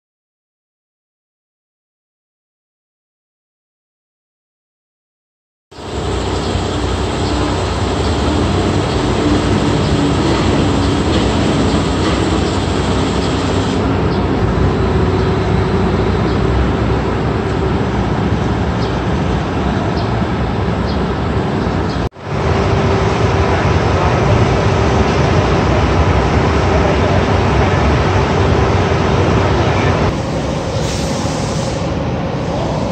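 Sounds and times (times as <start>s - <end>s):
conveyors running: 5.8s - 31.0s.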